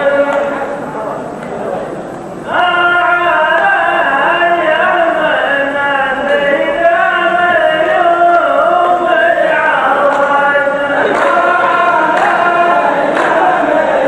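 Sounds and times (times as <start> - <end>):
men chanting in unison: 2.4 - 14.0.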